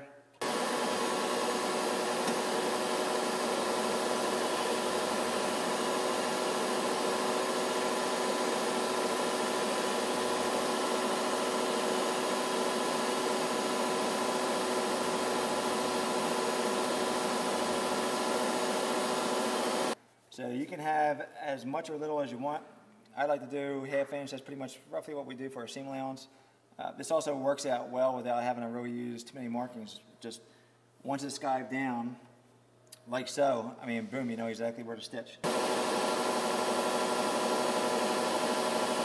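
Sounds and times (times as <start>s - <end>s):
leather skiving machine whirring: 0.4s - 20.0s, 35.4s - 39.0s.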